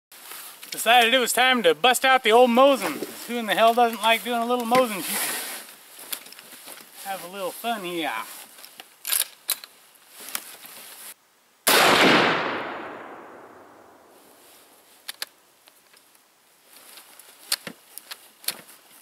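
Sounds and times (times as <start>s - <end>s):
rifle shot with long echo: 11.7s - 14.4s.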